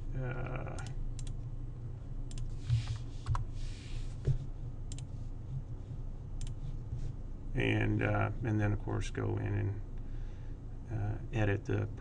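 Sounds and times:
computer mouse clicks: 0.7 - 1.4, 2.3 - 3.4, 4.9 - 5.1, 6.4 - 6.6.

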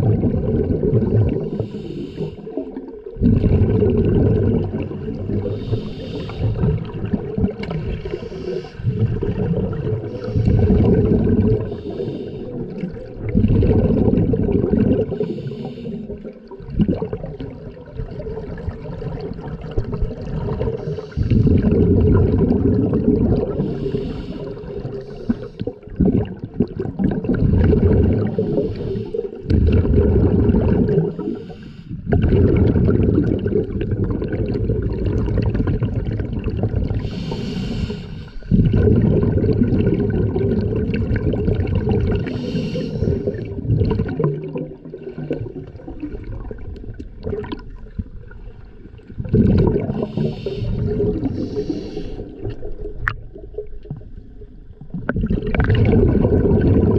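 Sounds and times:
exhaled bubbling underwater: 0.0 - 56.9
regulator inhalation hiss: 1.6 - 2.5, 5.5 - 6.6, 8.1 - 8.8, 11.7 - 12.6, 15.2 - 16.1, 23.6 - 25.7, 31.2 - 32.0, 37.0 - 38.5, 42.3 - 43.4, 50.0 - 52.4.

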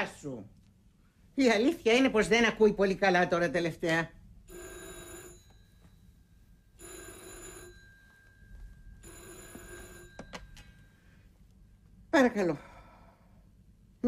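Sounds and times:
telephone ringing: 4.5 - 11.4.

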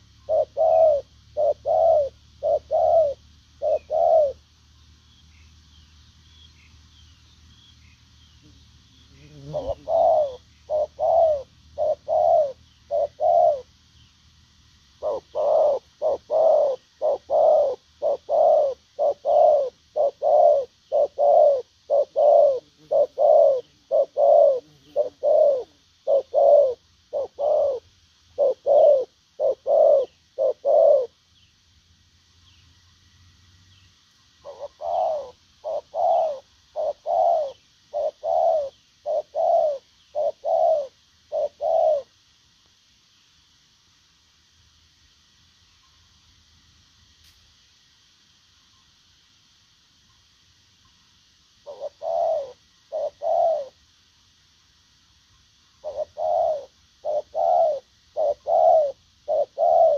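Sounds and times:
dove cooing: 0.0 - 4.5, 9.2 - 13.8, 15.0 - 31.2, 34.4 - 42.2, 51.6 - 53.8, 55.8 - 59.9.

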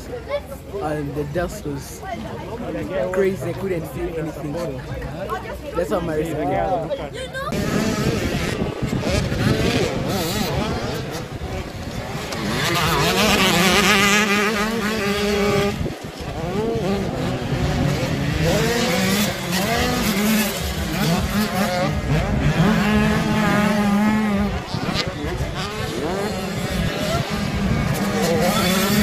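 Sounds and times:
motocross bike engines revving: 0.0 - 29.0.

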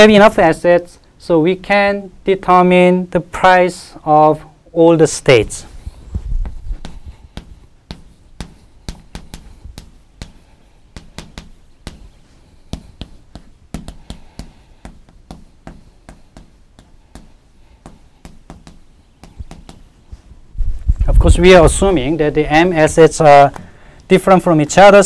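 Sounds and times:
chalk tapping on blackboard: 5.8 - 20.3.

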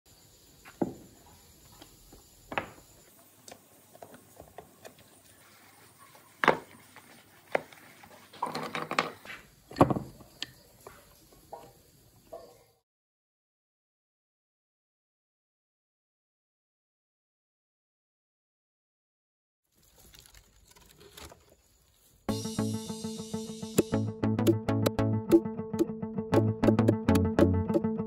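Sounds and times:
wooden clatter and rubbing: 6.4 - 10.3.

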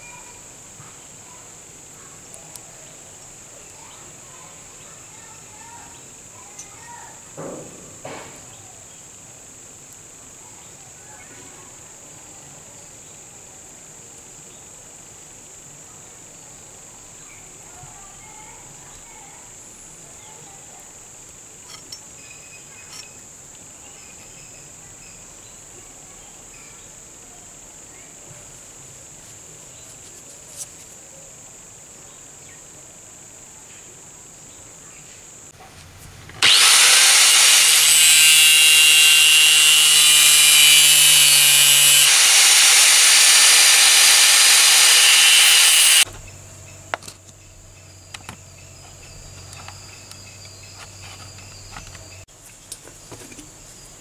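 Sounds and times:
crickets chirring: 14.0 - 54.0
power tool motor running: 36.4 - 46.1
small scrapes: 50.7 - 52.0.

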